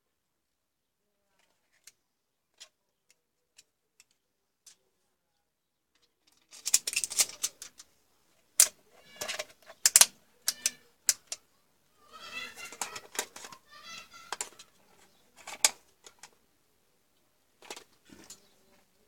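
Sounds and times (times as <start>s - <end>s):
plastic device rustling and clicking: 6.0s - 7.9s, 8.6s - 11.4s, 12.4s - 16.4s, 17.6s - 18.5s.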